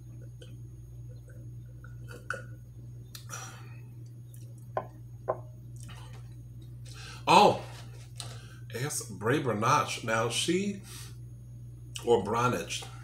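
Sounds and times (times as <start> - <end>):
steady low hum: 0.0 - 13.0
faint gulps: 0.2 - 4.7
glass knocking on table: 4.8 - 5.5.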